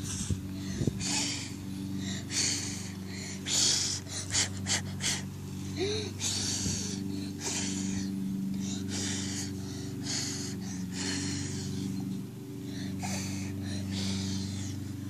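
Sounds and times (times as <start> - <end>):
breaths close to microphone: 0.0 - 15.0
steady low hum: 0.0 - 15.0.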